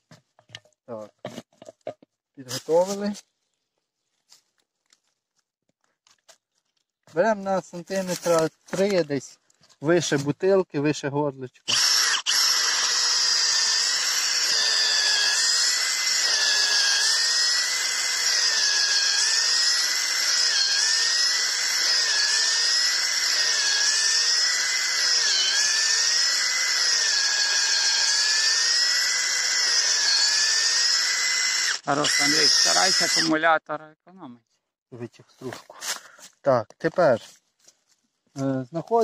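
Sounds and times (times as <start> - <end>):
cordless drill whining into wood: 11.7 - 33.4.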